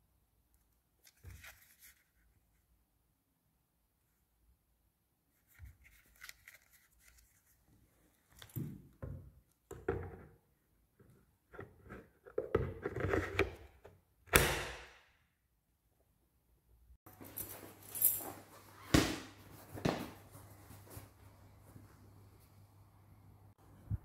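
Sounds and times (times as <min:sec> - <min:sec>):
hard plastic knocking and scraping: 0:11.6 - 0:14.0.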